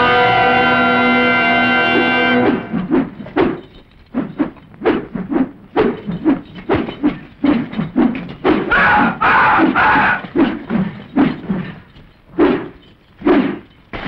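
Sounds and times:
person shouting: 8.7s - 10.2s.

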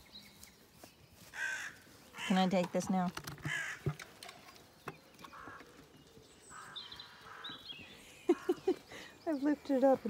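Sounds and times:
crows cawing: 1.3s - 2.5s, 3.4s - 4.1s, 5.2s - 5.8s, 6.5s - 8.6s
small bird chirping: 3.6s - 10.0s.

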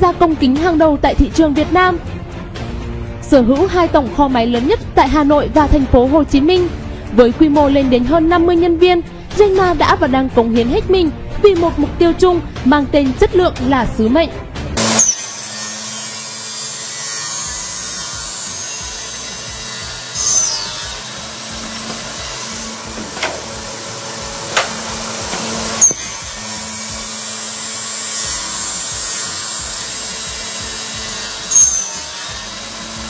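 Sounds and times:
blade squealing through metal: 14.8s - 33.0s
saw whining: 14.8s - 33.0s.

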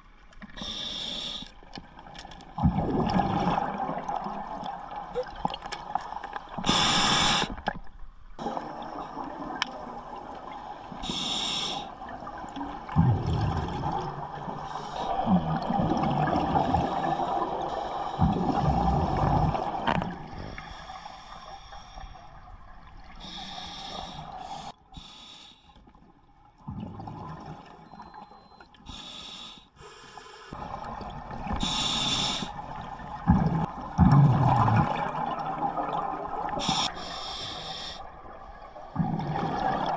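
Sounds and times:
regulator breathing hiss: 0.6s - 1.5s, 6.7s - 7.6s, 11.0s - 11.9s, 23.2s - 25.8s, 31.6s - 32.6s, 36.6s - 38.1s
exhaled bubbles gurgling: 2.5s - 7.8s, 8.4s - 20.8s, 26.6s - 28.2s, 30.5s - 37.4s, 38.1s - 39.9s.

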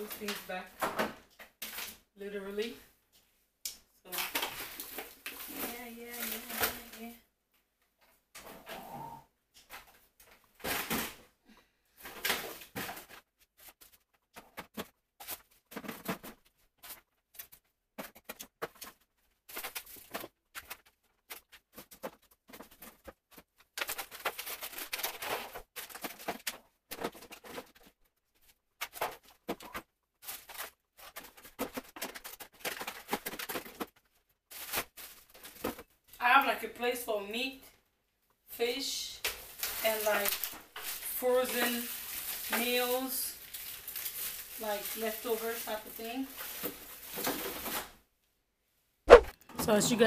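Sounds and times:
frozen food packages rustling: 4.1s - 7.2s, 11.9s - 36.5s, 39.2s - 48.0s.

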